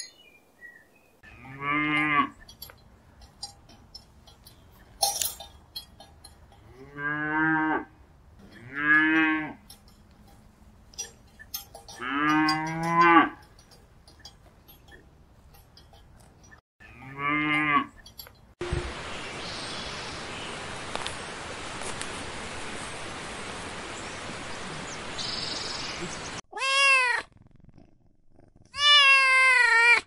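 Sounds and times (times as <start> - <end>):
cattle mooing: 1.2 - 2.5, 6.5 - 9.8, 11.0 - 13.7, 16.8 - 18.0.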